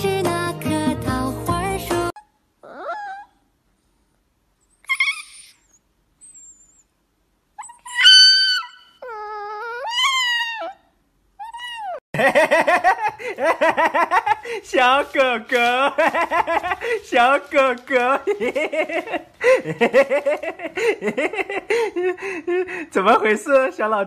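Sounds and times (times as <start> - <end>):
puppy howling: 2.6 - 3.4, 7.6 - 12.0.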